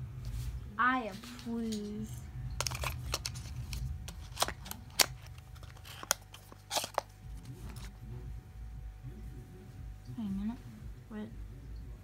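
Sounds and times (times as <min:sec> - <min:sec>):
low rumble of phone handling: 0:02.5 - 0:08.0
phone handling rustling and clicks: 0:02.6 - 0:07.9.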